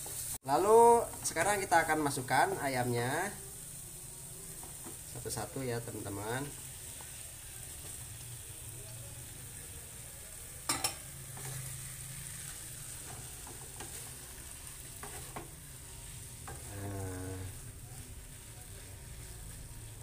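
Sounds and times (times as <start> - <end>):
frying sizzle: 0.0 - 20.0
spatula scraping wok: 10.4 - 20.0.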